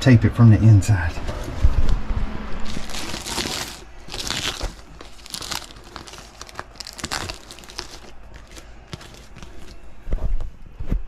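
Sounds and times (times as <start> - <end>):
foil tape crinkling and ripping: 2.6 - 9.8.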